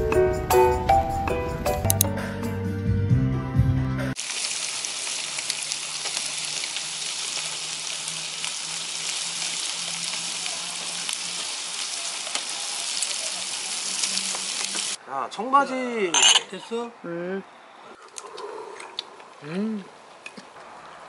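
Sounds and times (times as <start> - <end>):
background music: 0.0 - 4.2
meat sizzling on charcoal grill: 4.2 - 15.0.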